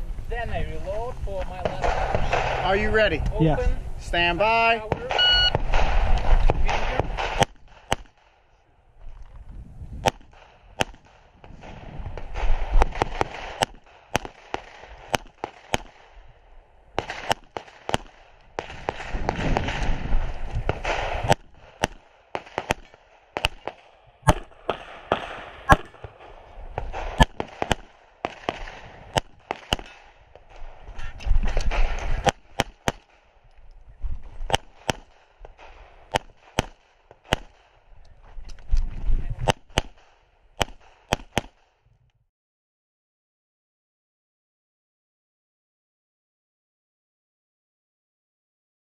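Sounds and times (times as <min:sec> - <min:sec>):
pistol shots: 0:01.6 - 0:02.7, 0:04.9 - 0:08.4, 0:10.0 - 0:16.2, 0:17.0 - 0:20.0, 0:20.7 - 0:30.8, 0:31.5 - 0:33.3, 0:34.5 - 0:37.8, 0:39.4 - 0:41.7
shot timer beep: 0:05.1 - 0:05.6.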